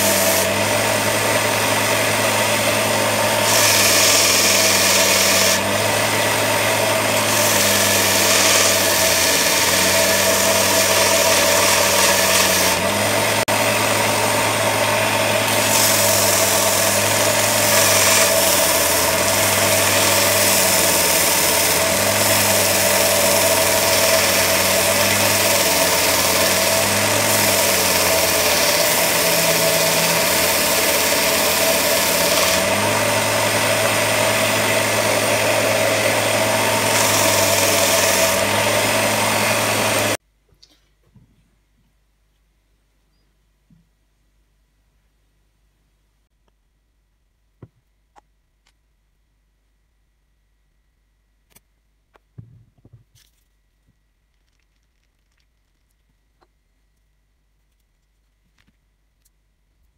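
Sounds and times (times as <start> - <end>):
grinder motor hum: 0.0 - 40.2
wood grinding on sanding belt: 0.0 - 40.2.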